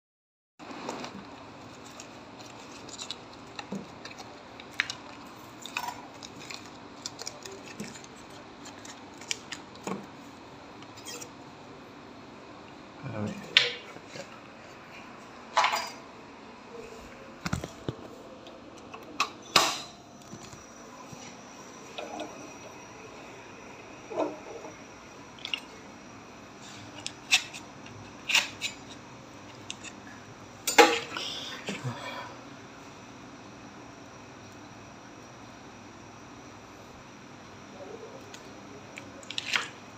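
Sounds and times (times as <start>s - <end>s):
foil paper wrapper crinkling: 0.7s - 9.8s.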